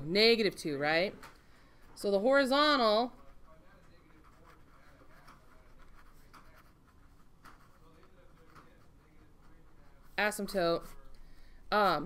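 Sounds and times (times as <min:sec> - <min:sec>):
marker pen scratching on paper: 0:02.1 - 0:11.1.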